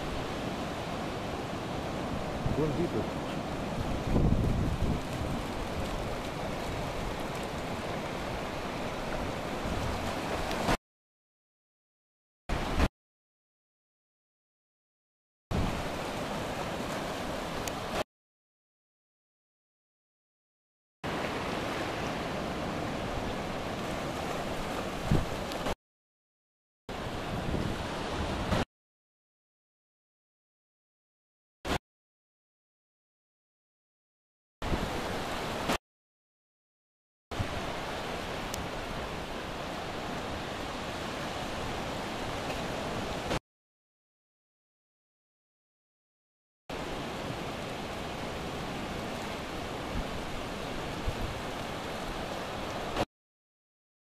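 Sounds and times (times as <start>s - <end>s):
ocean surf rushing: 0.0s - 10.8s, 12.5s - 12.9s, 15.5s - 18.0s, 21.0s - 25.8s, 26.9s - 28.7s, 34.6s - 35.8s, 37.4s - 43.4s, 46.7s - 53.1s.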